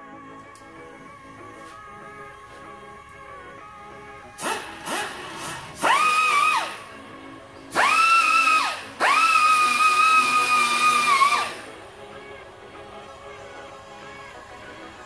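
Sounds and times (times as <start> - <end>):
background music: 0.0 - 15.0
air hiss: 4.4 - 6.8
pneumatic air tool whining: 4.4 - 7.0, 7.7 - 11.7.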